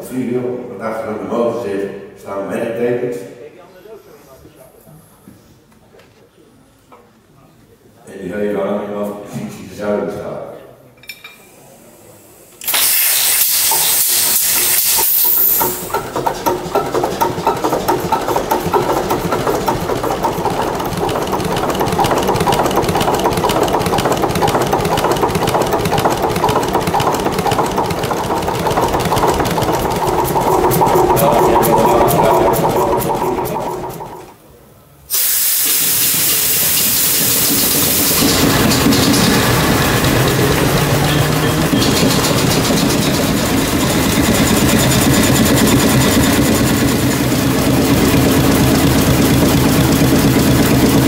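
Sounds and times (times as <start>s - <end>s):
rush of compressed starting air: 12.6s - 16.3s, 35.1s - 49.3s
diesel engine running: 15.2s - 34.4s, 36.5s - 51.0s.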